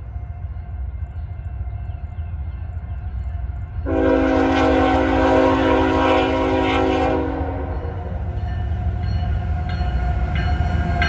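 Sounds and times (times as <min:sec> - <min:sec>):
locomotive air horn chord: 0:03.8 - 0:08.2.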